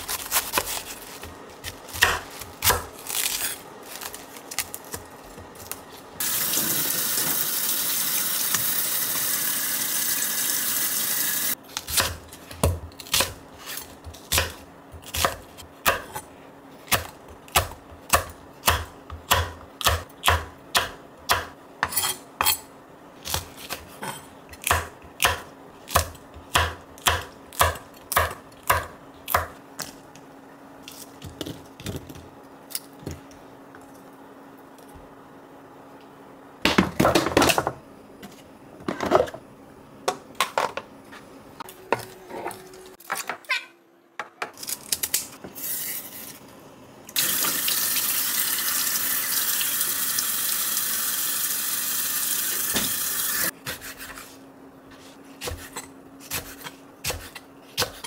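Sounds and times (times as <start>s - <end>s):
knife chopping on wooden board: 1.9s - 2.9s, 55.4s - 58.0s
faucet water running: 6.2s - 11.6s, 47.2s - 53.5s.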